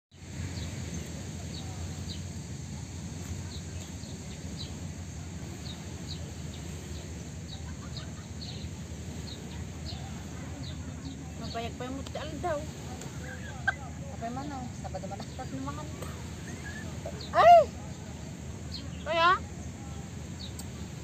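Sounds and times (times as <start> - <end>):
low background rumble: 0.2 - 21.0.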